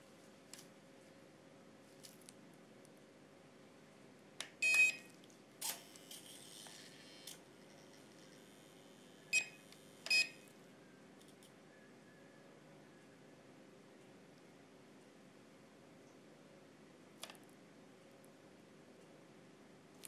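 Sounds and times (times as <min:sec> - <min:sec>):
short electronic beeps: 0:04.6 - 0:05.1, 0:09.3 - 0:10.4.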